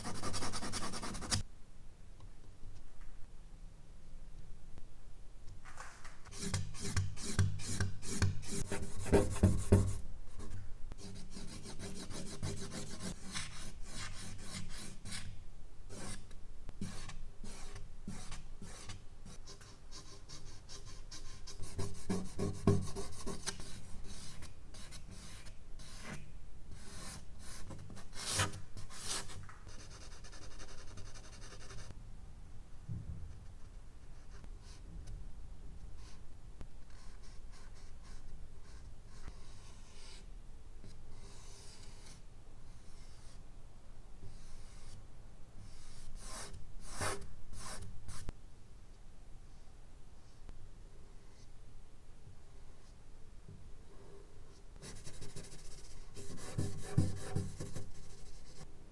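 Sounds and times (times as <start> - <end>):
charcoal scratching on paper: 54.8 - 58.7.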